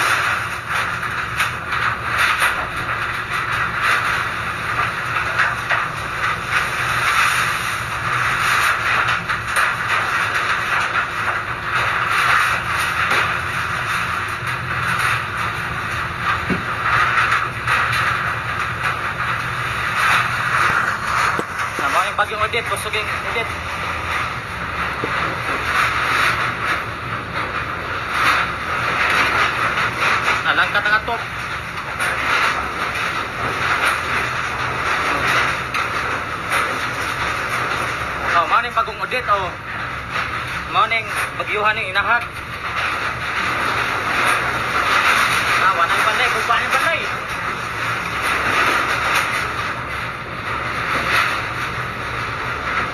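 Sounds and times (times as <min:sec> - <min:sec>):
metal roof sheet clattering: 0:00.0 - 0:52.9
wind and rain on metal roof: 0:00.0 - 0:52.9.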